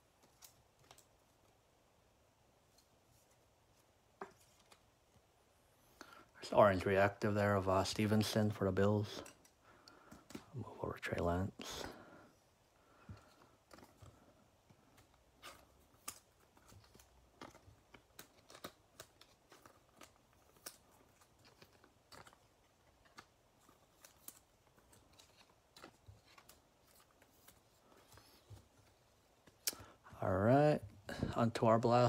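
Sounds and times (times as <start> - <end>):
trading cards being handled: 12.9 - 30.0.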